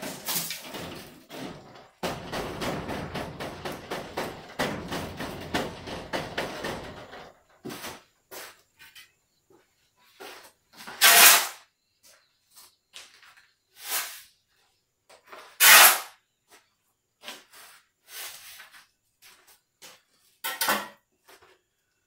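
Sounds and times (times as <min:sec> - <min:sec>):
shovel scraping sand on concrete: 0:10.9 - 0:11.6, 0:13.8 - 0:14.3, 0:15.6 - 0:16.1, 0:17.4 - 0:18.8.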